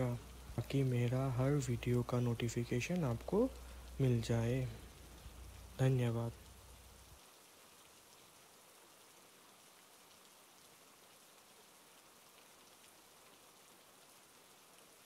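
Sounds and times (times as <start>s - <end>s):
faint steady rain: 0.0s - 15.0s.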